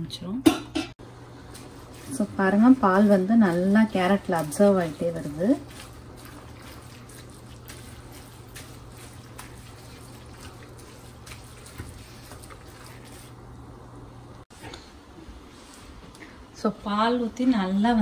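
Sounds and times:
milk bubbling: 0:03.8 - 0:14.4.

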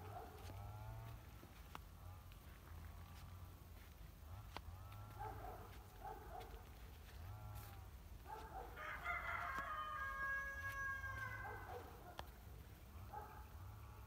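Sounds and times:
rooster crowing: 0:08.8 - 0:11.9.

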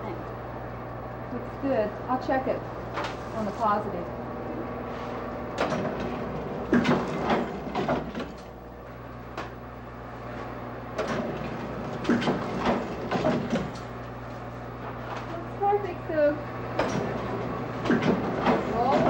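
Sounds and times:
steady low hum: 0:00.0 - 0:19.0
printing press clacks and knocks: 0:05.5 - 0:08.5, 0:11.0 - 0:13.9, 0:16.7 - 0:19.0.

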